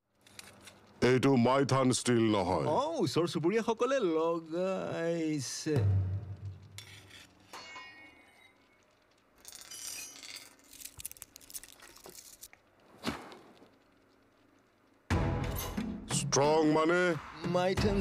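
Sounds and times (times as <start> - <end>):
metallic clicks and scrapes: 0.1 - 1.0, 6.6 - 12.6
steel rod ringing: 7.5 - 8.6.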